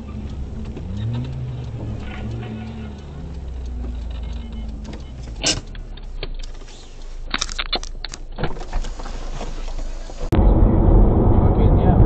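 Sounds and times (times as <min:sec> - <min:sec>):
sharp clicks and knocks: 0:00.0 - 0:09.6
car engine idling: 0:00.0 - 0:10.3.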